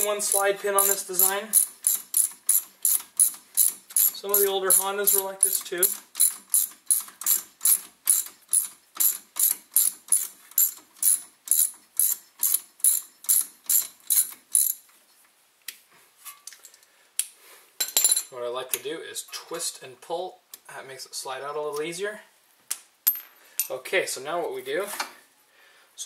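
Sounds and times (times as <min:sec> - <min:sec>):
ratchet wrench clicking: 0:00.3 - 0:14.8.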